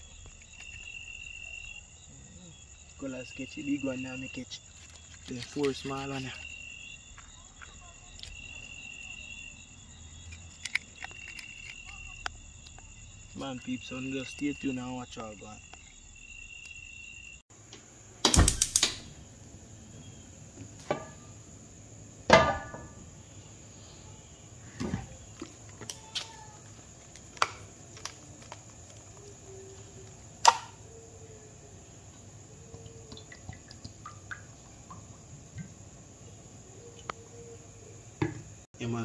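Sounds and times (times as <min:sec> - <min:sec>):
crickets chirping: 0:00.0 - 0:39.0
cookware knocking and clanking: 0:22.3 - 0:23.0.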